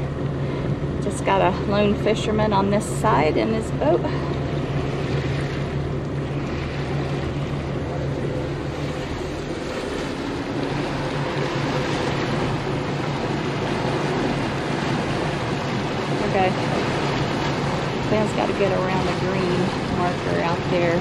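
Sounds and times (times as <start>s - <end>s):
boat engines droning: 0.0s - 21.0s
water rushing along hull: 0.0s - 21.0s.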